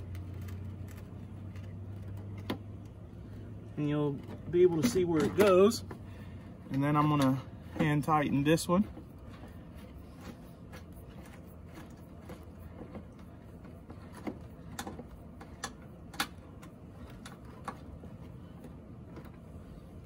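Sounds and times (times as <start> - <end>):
faint low hum: 0.0 - 20.0.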